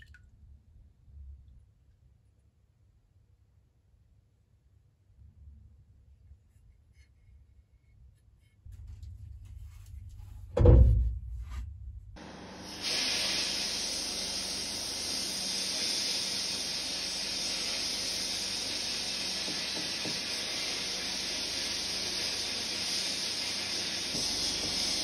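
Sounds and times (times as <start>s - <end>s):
heavy low thump: 10.5s - 11.6s
sandblasting gun hissing: 12.2s - 25.0s.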